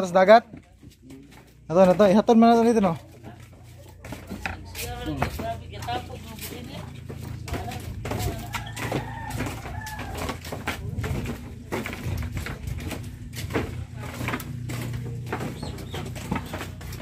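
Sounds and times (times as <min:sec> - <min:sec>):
flip-flop footsteps on bamboo: 0:00.0 - 0:17.0
bird calling: 0:15.4 - 0:17.0.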